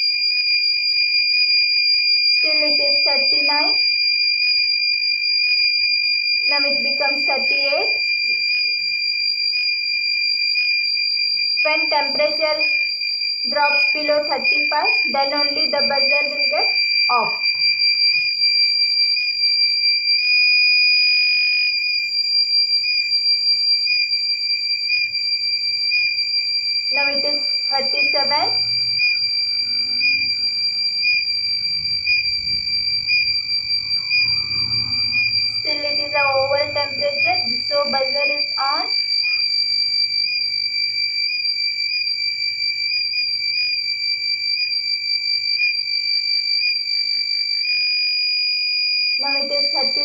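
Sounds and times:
high-pitched alarm buzzer: 0.0s - 50.0s
electronic buzzer high-pitched tone: 11.6s - 18.1s, 26.8s - 42.1s, 49.0s - 50.0s.

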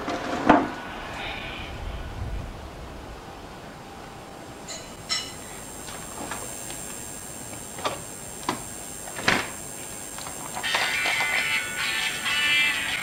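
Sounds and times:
drinking glasses clinking: 4.7s - 5.4s
music: 10.6s - 13.0s.

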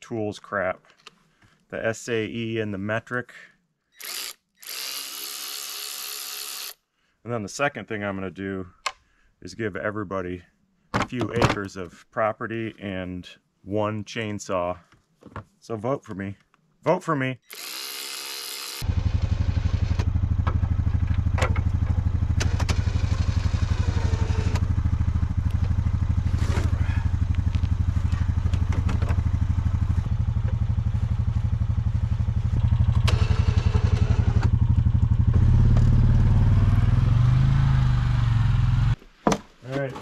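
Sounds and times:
cordless drill whirring: 4.0s - 6.8s, 17.5s - 18.8s
atv engine running: 18.8s - 39.0s.

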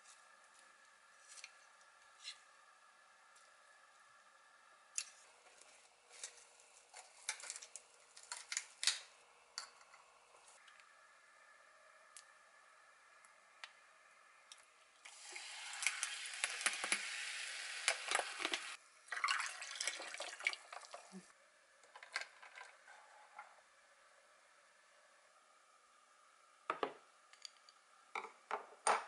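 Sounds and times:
drink pouring over ice: 15.1s - 21.2s.

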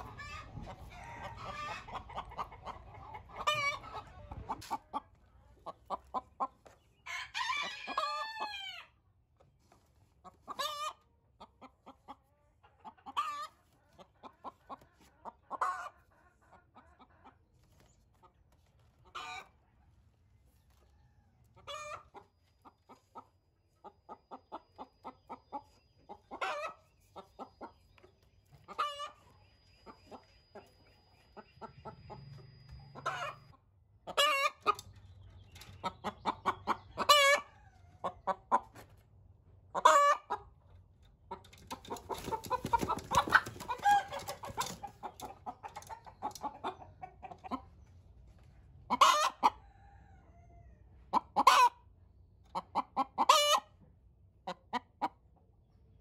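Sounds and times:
chickens clucking: 0.0s - 56.0s.

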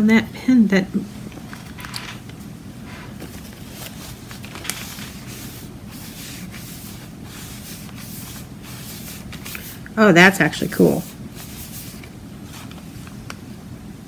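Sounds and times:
pad wiping on photo paper: 3.5s - 9.8s, 10.6s - 13.0s.

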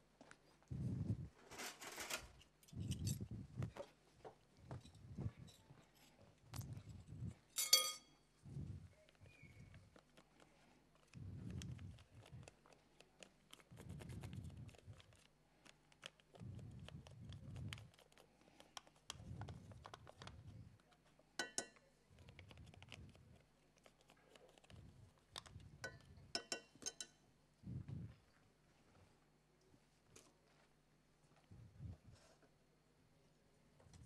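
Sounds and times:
metal spoon scraping and tapping: 7.6s - 8.1s, 21.4s - 21.8s, 25.8s - 27.2s
ringing metal clinks: 7.6s - 8.2s.

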